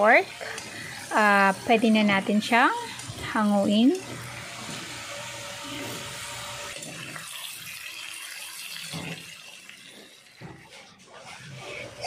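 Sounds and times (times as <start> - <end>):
meat sizzling in oil: 0.0 - 10.4.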